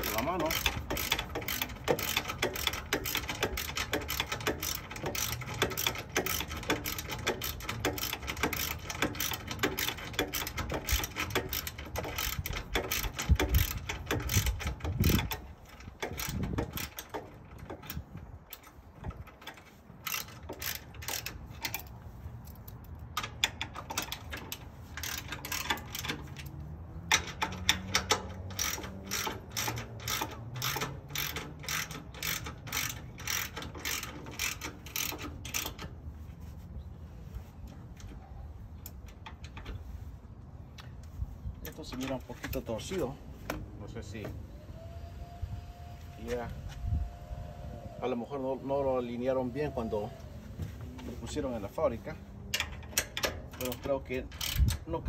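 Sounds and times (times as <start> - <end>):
ratchet wrench clicking: 0.0 - 36.0, 52.5 - 55.0.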